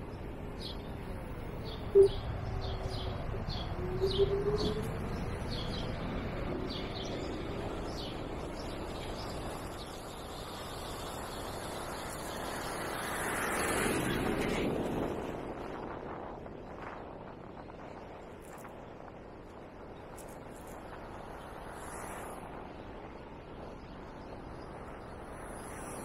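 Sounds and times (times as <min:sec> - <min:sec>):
street traffic noise: 0:00.0 - 0:15.8
birds chirping: 0:01.6 - 0:06.0
broad whooshing noise: 0:02.0 - 0:05.8.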